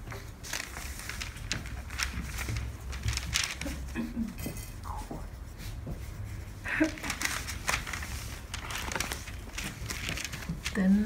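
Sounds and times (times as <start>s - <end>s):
paper and fabric rustling: 0.0s - 11.0s.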